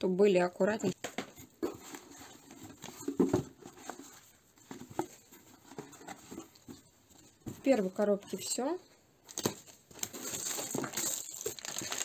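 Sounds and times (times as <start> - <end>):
items knocking against cardboard: 1.0 - 7.7
paper rustling: 9.4 - 12.0.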